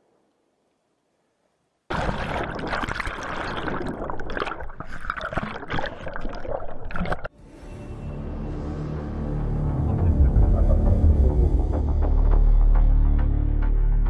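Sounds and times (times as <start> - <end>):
water churning and gurgling: 1.9 - 7.3
ominous music with low drone: 7.4 - 14.0.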